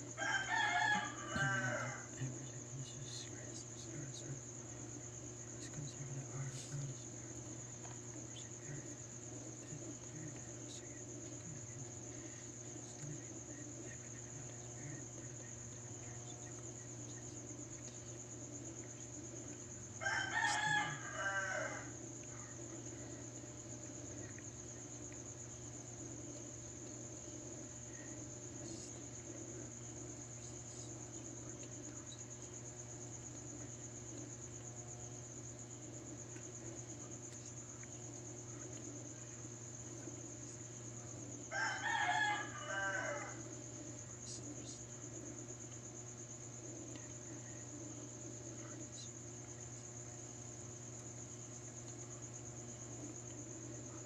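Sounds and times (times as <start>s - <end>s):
crickets chirring: 0.0s - 54.0s
low steady hum: 0.0s - 54.0s
rooster crowing: 0.1s - 2.3s, 20.0s - 22.5s, 41.5s - 43.5s.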